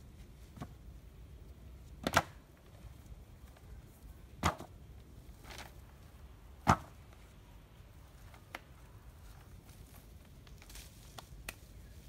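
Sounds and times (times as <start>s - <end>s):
bamboo poles knocking together: 2.0s - 2.7s, 4.4s - 4.8s.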